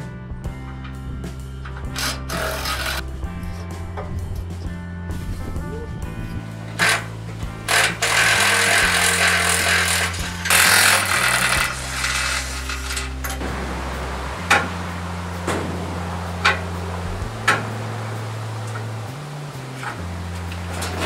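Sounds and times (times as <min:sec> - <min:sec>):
background music with bass line: 0:00.0 - 0:21.0
tool rasping on metal: 0:02.0 - 0:03.0, 0:06.8 - 0:07.1, 0:07.7 - 0:13.2
sharp metal knocks: 0:07.7 - 0:18.2.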